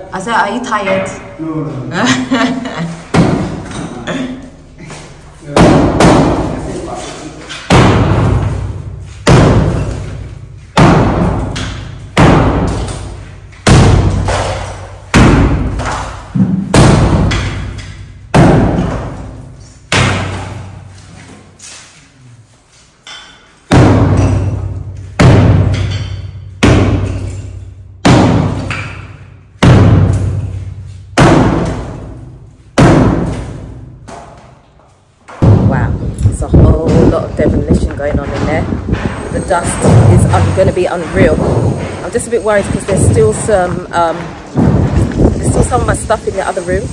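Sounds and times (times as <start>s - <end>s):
sledgehammer hitting masonry wall: 3.1s - 3.9s, 5.5s - 6.8s, 7.5s - 20.9s, 23.7s - 34.4s, 35.3s - 46.2s.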